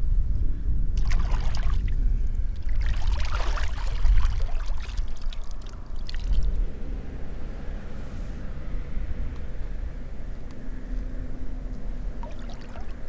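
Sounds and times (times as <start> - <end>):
low steady rumble: 0.0 - 13.0
water splashing and pouring: 1.0 - 2.0, 2.6 - 6.6, 12.2 - 13.0.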